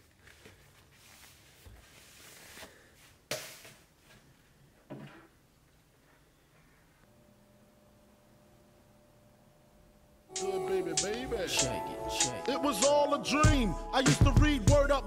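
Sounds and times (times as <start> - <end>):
handling and rustling: 0.0 - 7.0.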